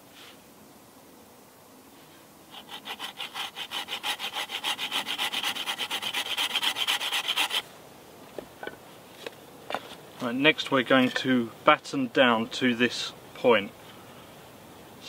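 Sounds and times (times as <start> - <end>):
hand saw cutting wood: 2.5 - 7.6.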